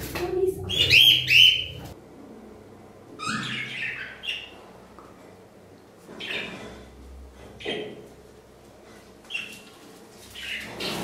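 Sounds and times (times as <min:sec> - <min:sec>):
pet birds calling: 0:00.7 - 0:02.0, 0:03.2 - 0:04.6, 0:10.3 - 0:11.0.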